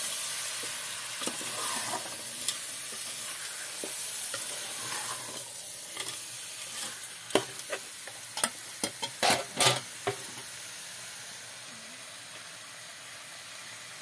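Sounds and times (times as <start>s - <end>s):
fish sizzling in oil: 0.0s - 14.0s
ladle stirring and scraping pot: 0.6s - 10.3s.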